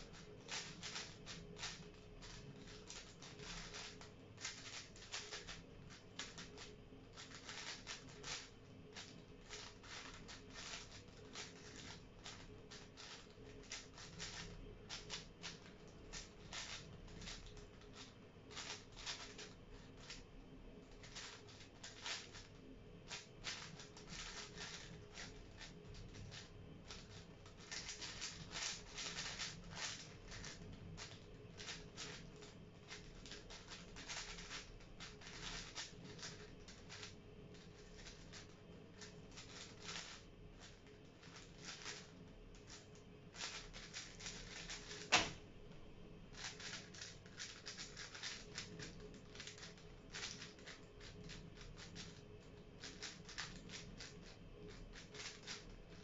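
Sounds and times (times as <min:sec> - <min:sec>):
faint steady hum: 0:00.0 - 0:56.0
puzzle cube plastic clicks: 0:00.5 - 0:05.6, 0:23.1 - 0:32.2.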